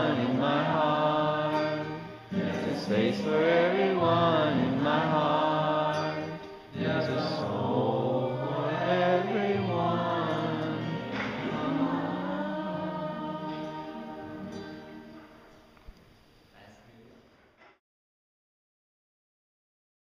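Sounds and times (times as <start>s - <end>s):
group singing in unison: 0.0s - 15.8s.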